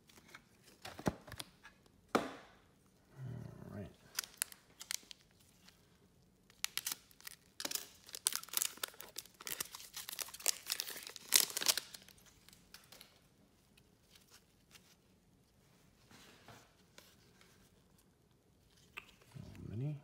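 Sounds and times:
faint rustling of cards: 4.0s - 20.0s
foil wrapper tearing and crinkling: 4.1s - 5.8s, 6.5s - 13.1s.

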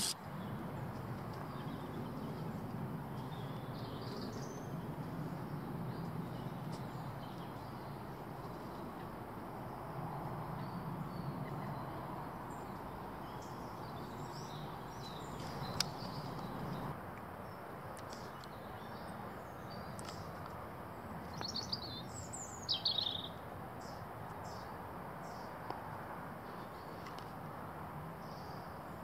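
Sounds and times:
small birds chirping: 10.6s - 16.9s.

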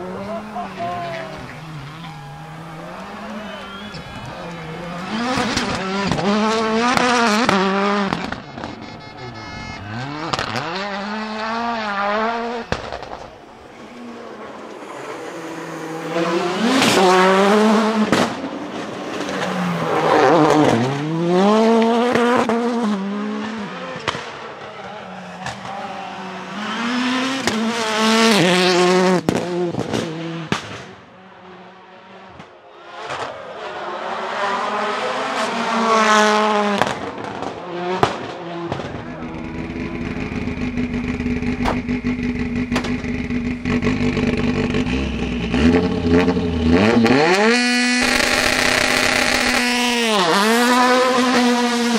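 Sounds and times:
rally cars accelerating and revving: 0.0s - 51.9s
tyre squeal: 0.2s - 6.0s, 8.1s - 10.9s.

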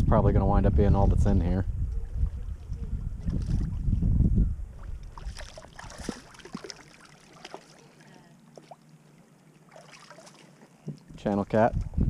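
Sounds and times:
wind rumble on microphone: 0.0s - 6.3s, 11.1s - 12.0s
water splashing: 4.8s - 11.2s.

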